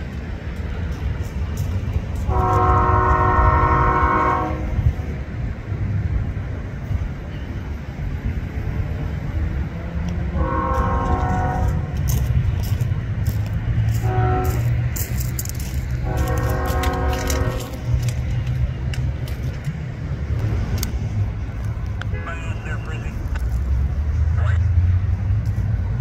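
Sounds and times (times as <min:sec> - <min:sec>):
passing train rumble: 0:00.0 - 0:26.0
locomotive air horn blasts: 0:02.2 - 0:04.9, 0:10.3 - 0:12.2, 0:13.9 - 0:15.0, 0:16.0 - 0:18.2.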